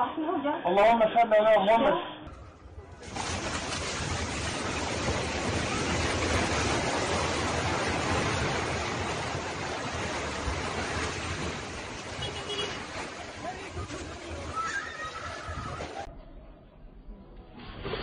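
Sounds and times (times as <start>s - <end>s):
building collapsing roar: 2.5s - 12.2s.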